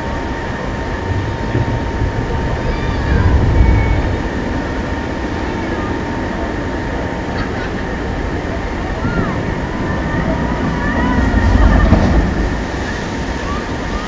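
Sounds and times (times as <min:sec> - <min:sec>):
low rumble: 0:00.0 - 0:07.3
constant rushing noise: 0:00.0 - 0:14.0
faint steady hum: 0:00.0 - 0:14.0.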